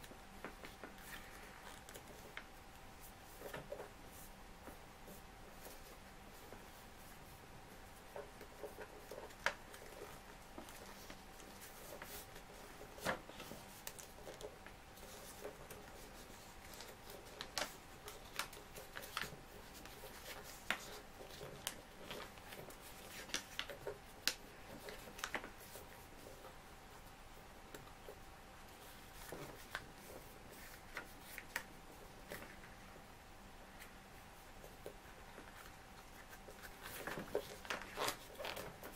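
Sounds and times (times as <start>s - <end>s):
paper folding and creasing: 0.0s - 2.5s, 8.0s - 26.5s, 35.3s - 38.9s
faint steady hum: 0.0s - 38.9s.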